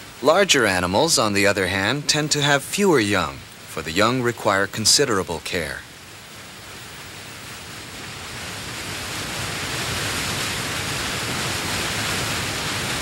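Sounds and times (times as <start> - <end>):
river rapids rushing: 0.0 - 3.6.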